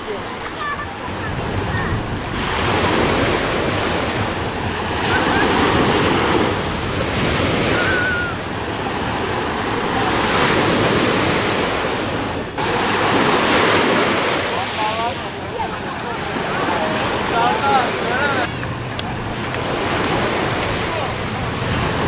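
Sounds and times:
sea waves washing on sandy shore: 0.0s - 22.0s
wind rumbling on microphone: 1.1s - 14.2s.

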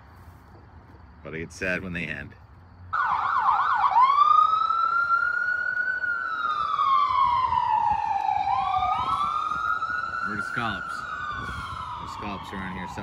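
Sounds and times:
emergency vehicle siren: 2.9s - 13.0s.

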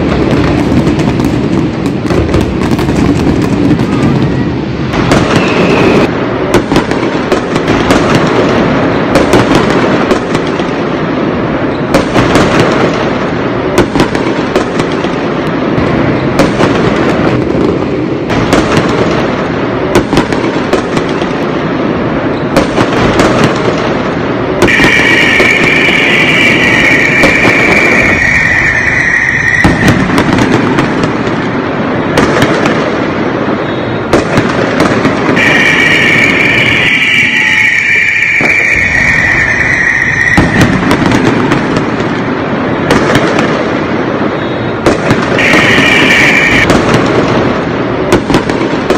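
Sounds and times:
fireworks bangs and crackling: 0.0s - 48.9s
steady high tone: 24.7s - 30.2s, 35.4s - 40.9s, 45.4s - 46.7s.

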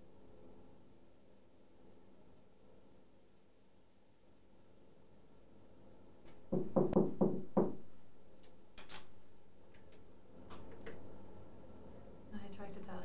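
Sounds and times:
knocks on a door: 6.5s - 7.9s.

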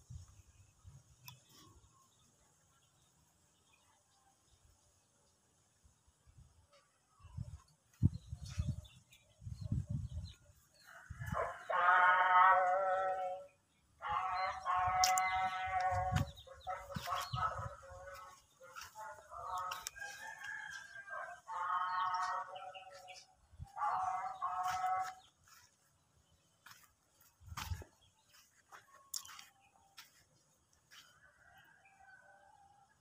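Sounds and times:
rooster crowing: 19.4s - 22.8s.

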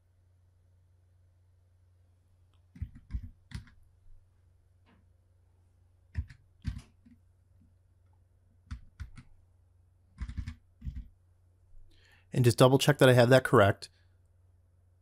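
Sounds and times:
keyboard keystrokes: 2.7s - 3.8s, 6.1s - 7.1s, 8.7s - 9.3s, 10.2s - 11.1s.

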